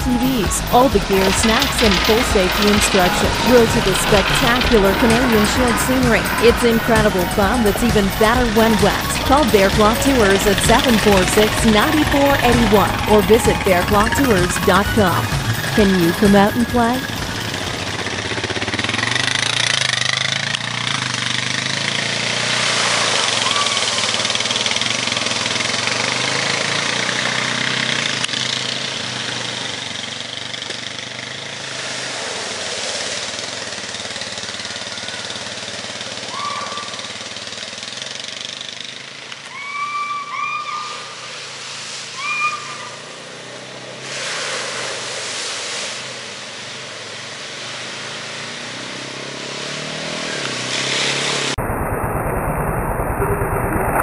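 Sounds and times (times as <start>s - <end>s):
atv engines droning: 0.0s - 44.2s, 46.2s - 54.0s
water and mud splashing: 22.0s - 27.8s, 31.6s - 34.7s, 41.1s - 51.6s
short high calls: 23.2s - 24.2s, 36.2s - 37.2s, 39.4s - 41.4s, 42.1s - 43.2s.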